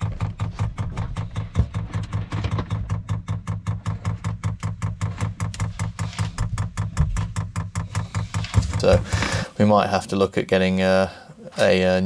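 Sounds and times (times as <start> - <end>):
fuel pump clicking rapidly: 0.0 - 9.6
low hum: 0.0 - 9.7.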